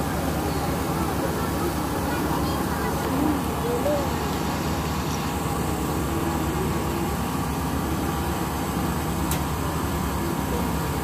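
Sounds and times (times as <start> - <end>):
faint distant voices: 0.0 - 8.4.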